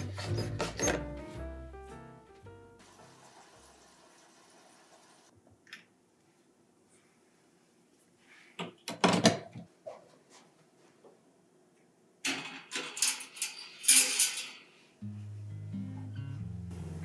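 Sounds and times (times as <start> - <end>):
acoustic guitar music: 15.0 - 17.0.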